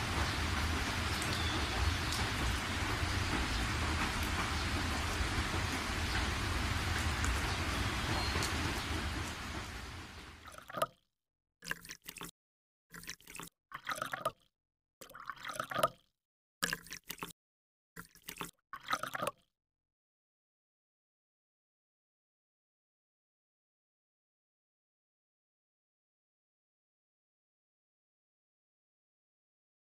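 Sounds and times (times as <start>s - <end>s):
steady rain: 0.0s - 10.4s.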